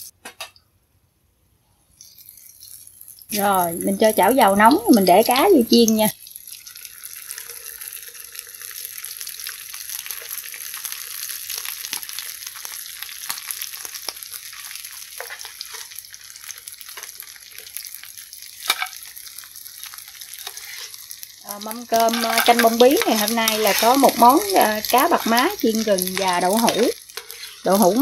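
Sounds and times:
oil sizzling in a frying pan: 2.0 - 28.0
stirring clicks: 21.5 - 28.0.

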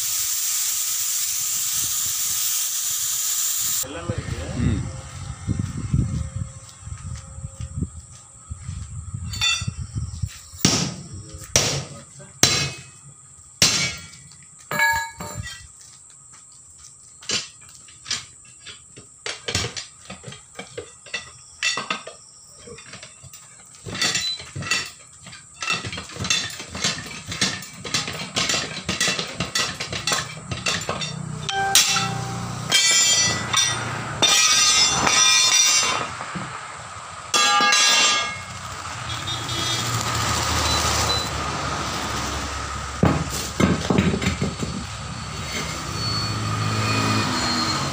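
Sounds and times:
passing vehicle: 3.8 - 9.1, 30.9 - 37.4, 38.0 - 47.9
sledgehammer blows on tyre rim: 10.6 - 13.0, 31.8 - 39.7.

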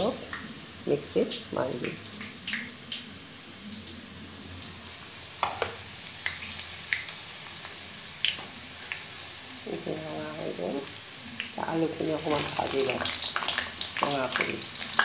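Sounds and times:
onions sizzling in hot oil: 0.0 - 15.0.

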